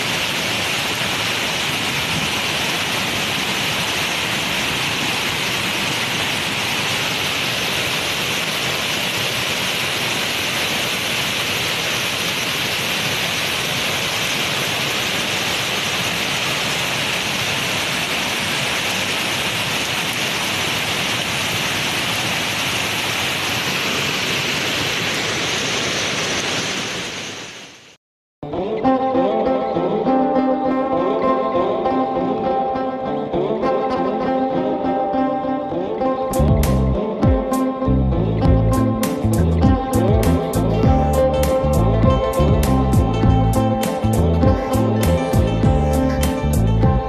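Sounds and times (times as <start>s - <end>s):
heavy rain: 0.0s - 28.0s, 38.5s - 47.0s.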